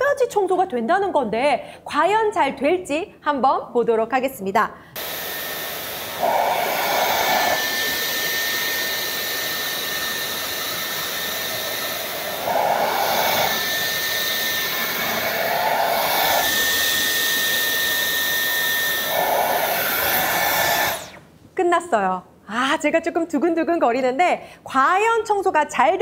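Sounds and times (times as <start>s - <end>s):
vacuum cleaner suction: 5.0s - 21.3s.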